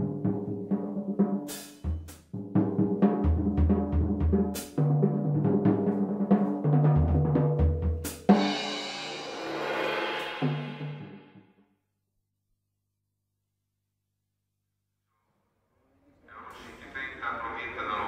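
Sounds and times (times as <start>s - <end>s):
cymbal crashes: 8.3s - 11.4s.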